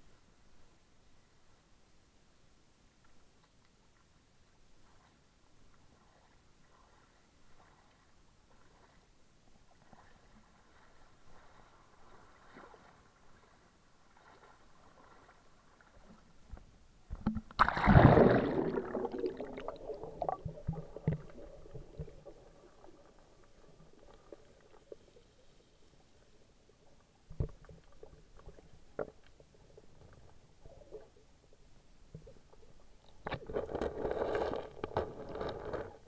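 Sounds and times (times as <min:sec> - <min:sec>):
faint underwater ambience: 0:00.0 - 0:36.0
water splashing and rushing: 0:17.4 - 0:25.2.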